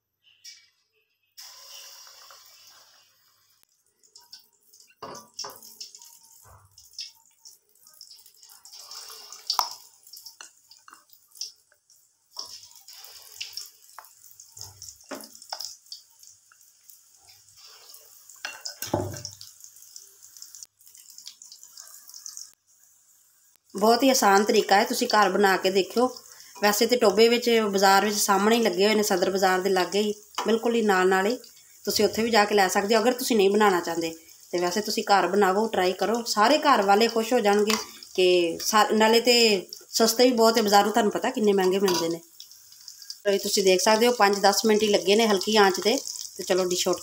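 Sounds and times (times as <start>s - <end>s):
deep-frying sizzle: 1.4s - 47.0s
oil crackling and popping: 3.6s - 22.6s, 36.5s - 38.8s, 40.6s - 47.0s.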